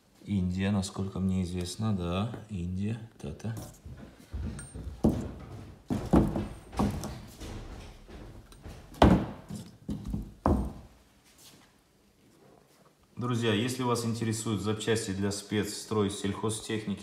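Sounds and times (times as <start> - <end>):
heavy pump thunking on table: 9.0 - 10.8.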